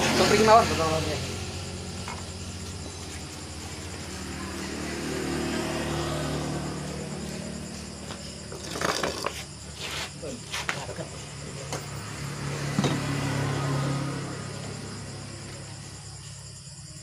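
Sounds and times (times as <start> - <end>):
motorcycle engine idling: 0.0 - 8.6
crickets chirping: 0.0 - 17.0.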